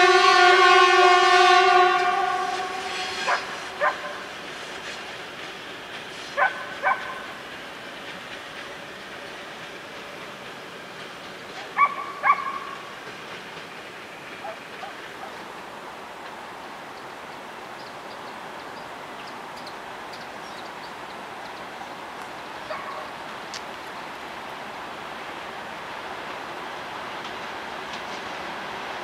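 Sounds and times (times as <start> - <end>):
steady background hiss: 1.9 - 29.0
dog barking: 3.3 - 4.2, 6.4 - 7.2, 11.8 - 12.6, 22.7 - 23.1.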